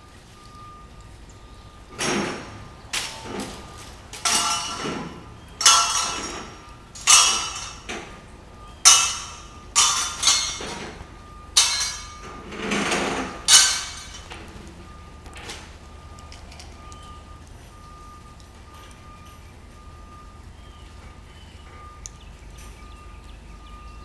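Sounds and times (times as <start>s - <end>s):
metal pipes clanging: 1.9s - 14.8s.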